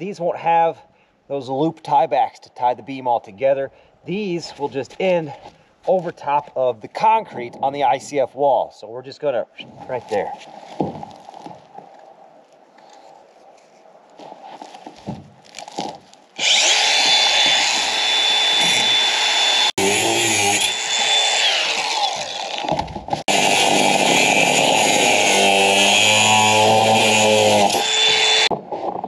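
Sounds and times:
angle grinder cutting steel: 16.4s - 28.5s.

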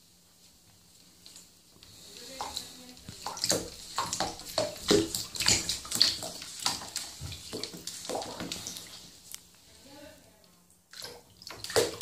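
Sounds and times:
water splashing in bathtub: 1.2s - 9.3s, 10.9s - 12.0s.

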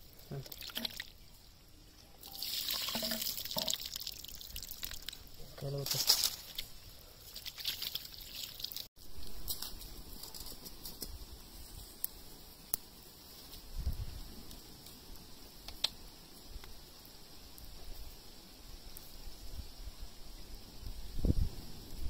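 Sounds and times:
water splashing over hands: 7.3s - 8.9s.

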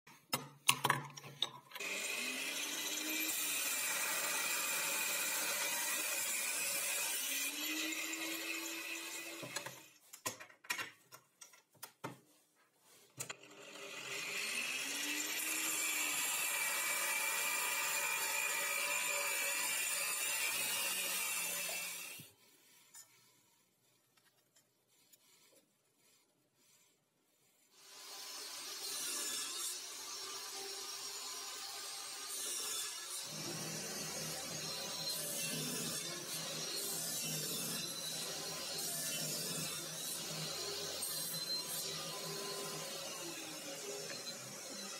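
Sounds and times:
angle grinder cutting steel: 1.8s - 10.0s, 13.3s - 22.3s, 27.8s - 44.9s.

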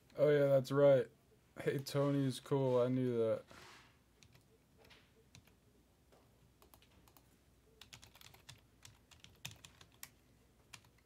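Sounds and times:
typing on keyboard: 4.2s - 4.5s, 5.3s - 5.5s, 6.6s - 11.0s.

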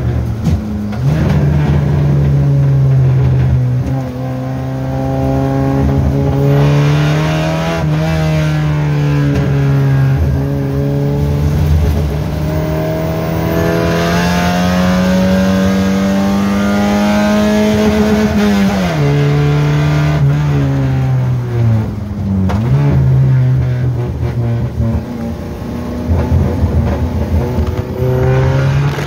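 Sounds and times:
car engine revving: 0.0s - 29.0s.

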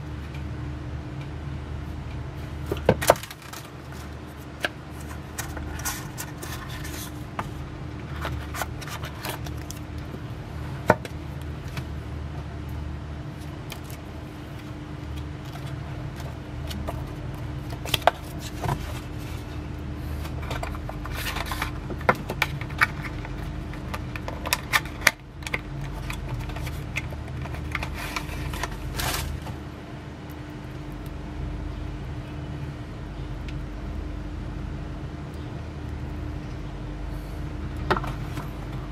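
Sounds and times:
steady low hum: 0.0s - 38.9s
sharp crinkles and clicks: 2.1s - 10.4s, 12.7s - 29.6s
pages being leafed: 2.8s - 10.0s, 13.4s - 29.5s
cardboard box opening: 25.9s - 29.4s.

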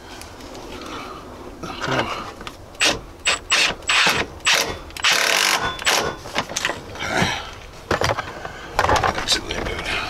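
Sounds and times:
cordless ratchet whining and ratcheting: 2.8s - 6.2s.

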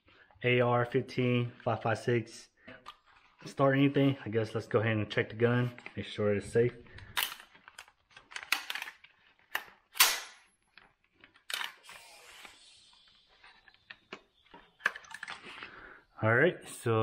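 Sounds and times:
rifle action clacking and clicking: 7.2s - 10.4s.

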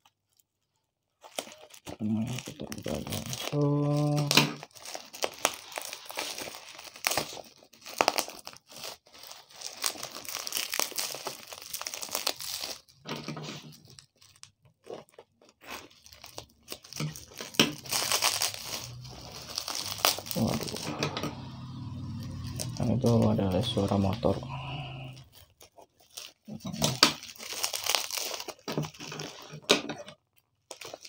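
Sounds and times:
plastic wrapping rustling: 0.0s - 31.0s
packing tape tearing: 1.2s - 20.9s, 25.2s - 29.9s, 30.7s - 31.0s.

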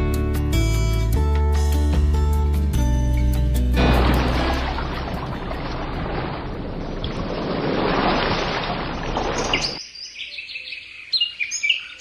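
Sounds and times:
ocean surf: 3.8s - 9.7s
birds chirping: 8.5s - 12.0s.

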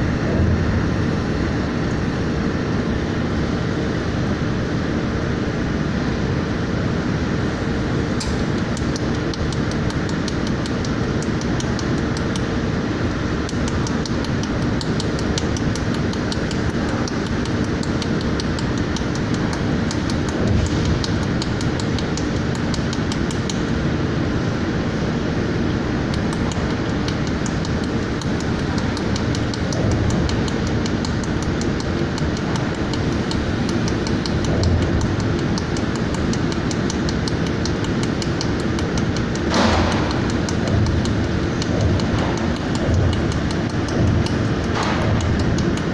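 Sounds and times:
machine hum and fan rush: 0.0s - 45.9s
laser welder sharp clicks: 8.2s - 23.8s, 26.1s - 45.9s.

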